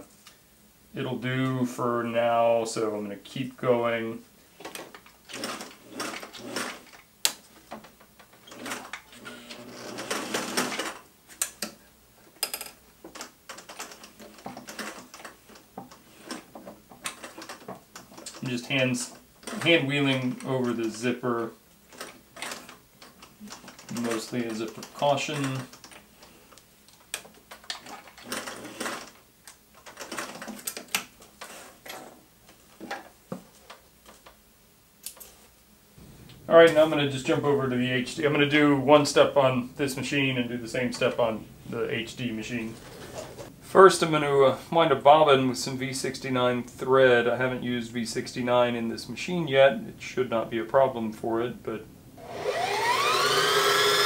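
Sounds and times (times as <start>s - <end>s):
sewing machine stitching: 4.8s - 7.0s, 8.4s - 11.0s, 13.5s - 15.3s, 27.7s - 29.2s, 29.8s - 30.8s, 52.2s - 54.0s.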